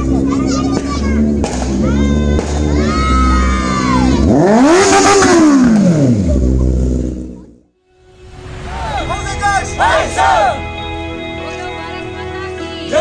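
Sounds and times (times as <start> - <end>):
motorcycle engine revving: 0.0 - 8.7
background music: 7.8 - 13.0.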